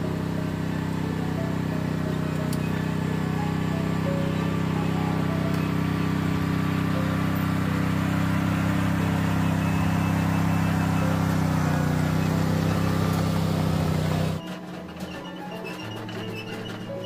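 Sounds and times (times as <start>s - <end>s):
tracked vehicle engine running: 0.0s - 17.0s.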